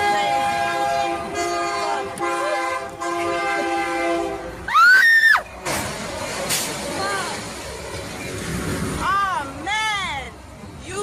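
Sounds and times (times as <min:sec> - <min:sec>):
locomotive air horn blasts: 0:00.0 - 0:04.6
loud high rising and falling cry: 0:04.7 - 0:05.5.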